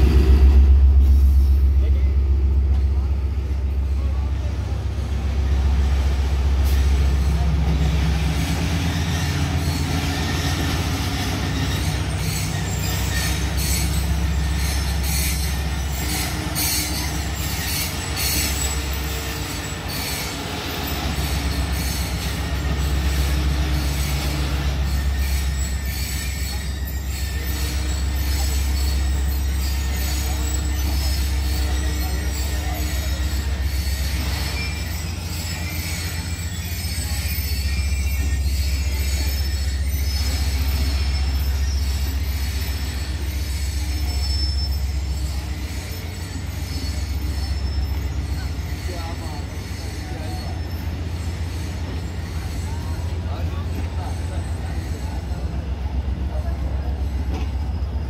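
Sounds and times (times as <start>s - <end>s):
train wheels clicking on rails: 0.0s - 57.8s.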